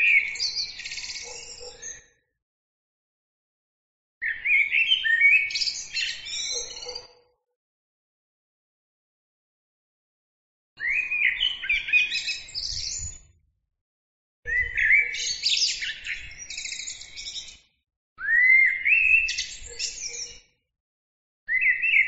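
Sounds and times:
blackbird singing: 0.0 - 2.1, 4.2 - 7.2, 10.8 - 13.3, 14.5 - 17.6, 18.2 - 20.4, 21.5 - 22.0.

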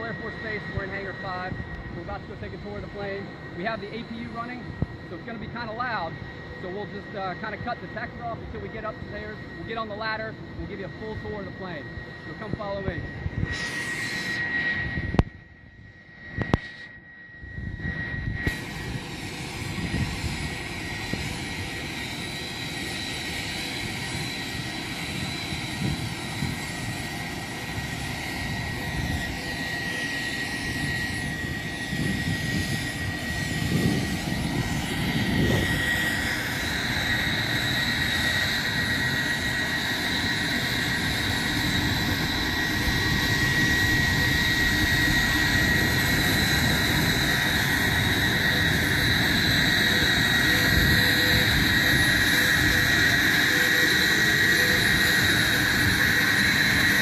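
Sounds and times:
aircraft auxiliary power unit whine: 0.0 - 57.0.

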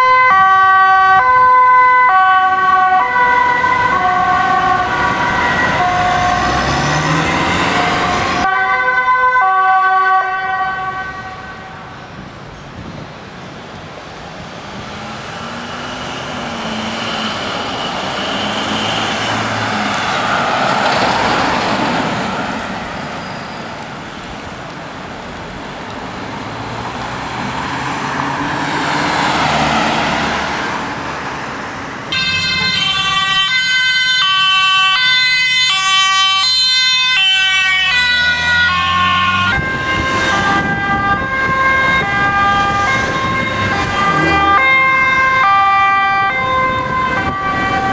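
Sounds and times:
ambulance siren: 0.0 - 12.0, 14.9 - 24.3, 32.0 - 47.9
road traffic passing: 0.0 - 47.9.

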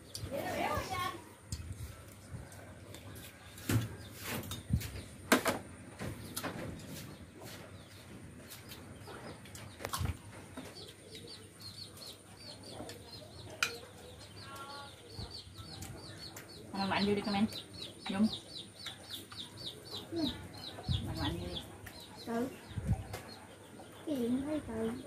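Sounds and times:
birds chirping faintly: 0.0 - 25.0
chopsticks clinking on bowls: 12.8 - 14.1.

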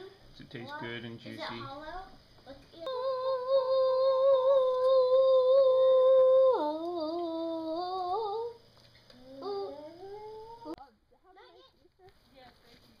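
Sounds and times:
child humming: 2.8 - 10.8.

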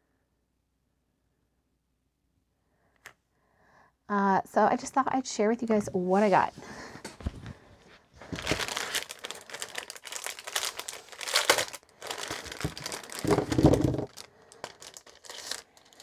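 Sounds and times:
plastic packaging crinkling: 8.2 - 16.0.

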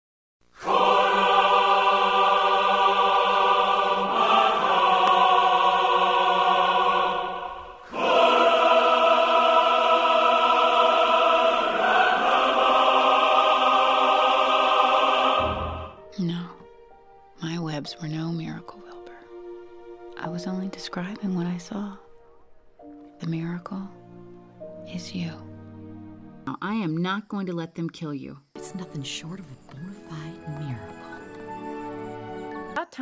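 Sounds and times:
wordless choir singing: 0.6 - 16.1.

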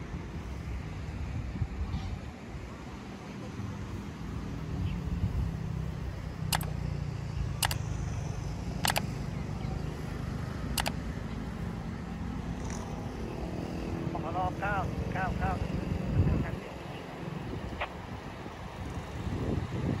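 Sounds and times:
distant railcar engines rumbling: 0.0 - 20.0
short sharp clicks: 6.5 - 6.7, 7.6 - 7.8, 8.8 - 9.1, 10.8 - 11.0.

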